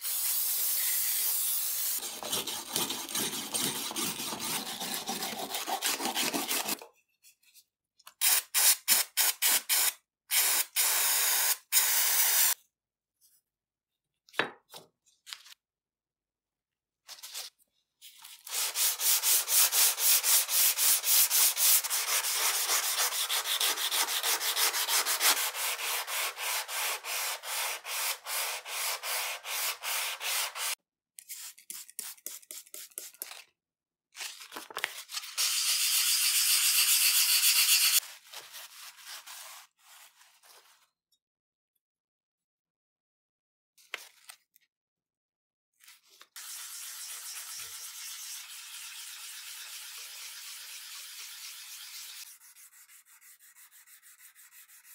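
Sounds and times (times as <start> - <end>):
brush scrubbing steel blade: 1.8 - 6.8, 18.5 - 30.8, 35.5 - 38.0, 46.4 - 54.9.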